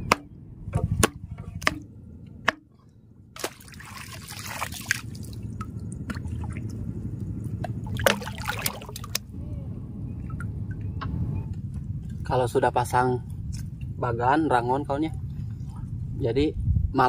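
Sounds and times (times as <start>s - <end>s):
sharp knocks: 0.0s - 2.8s
water splashing: 3.4s - 6.8s, 7.5s - 9.3s
water dripping and trickling: 7.6s - 9.2s.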